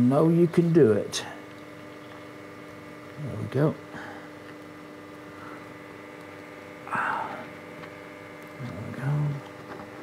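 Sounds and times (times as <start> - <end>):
low hummed vocal sound: 0.0 - 10.0
mains hum: 0.0 - 10.0
breathy exhale: 3.9 - 4.4, 6.9 - 7.5.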